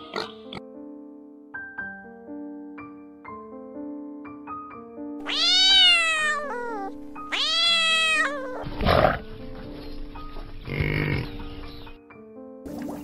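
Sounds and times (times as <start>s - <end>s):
piano music: 0.0s - 13.0s
cat meowing: 5.2s - 8.8s.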